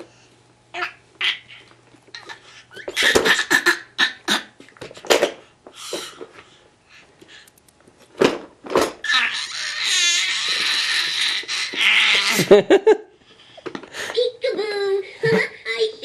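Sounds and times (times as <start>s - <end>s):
baby squealing and shrieking: 9.0s - 12.4s.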